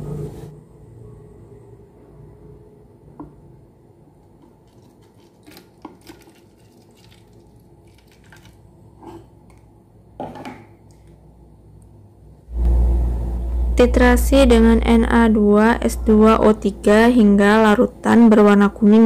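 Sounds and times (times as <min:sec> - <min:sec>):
low steady hum: 0:00.0 - 0:19.0
liquid pouring into a bottle: 0:04.7 - 0:08.6.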